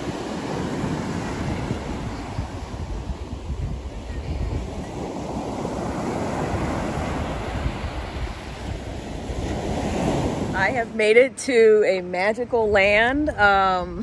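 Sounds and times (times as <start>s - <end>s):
wind rumbling on microphone: 0.0s - 11.1s
surf washing up beach: 0.0s - 11.9s.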